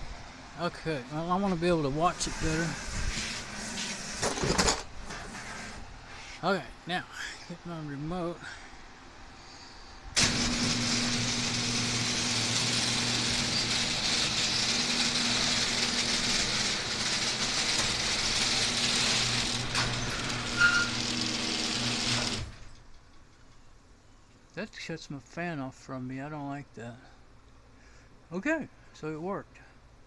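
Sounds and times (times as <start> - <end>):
garage door motor hum: 0.1 - 6.3, 10.2 - 23.4
garage door rattling: 10.2 - 23.3
brief squeak: 20.0 - 21.0.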